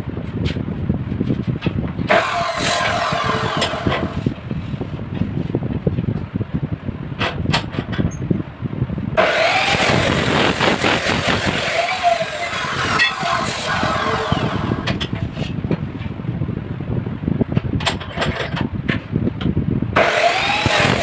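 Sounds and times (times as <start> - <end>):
chop saw grinding through steel: 2.1 - 4.3, 9.2 - 15.2, 20.0 - 21.0.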